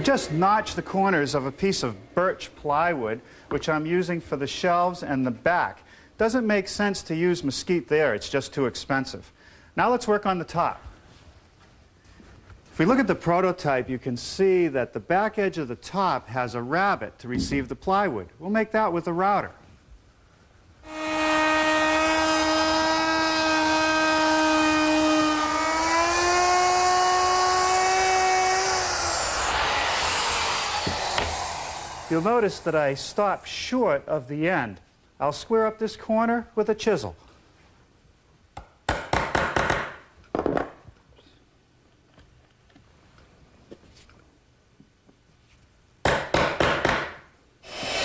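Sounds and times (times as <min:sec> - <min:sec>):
router motor whining: 0:20.9 - 0:33.4, 0:47.7 - 0:48.0
chisel cutting wood: 0:21.0 - 0:33.2, 0:47.7 - 0:48.0.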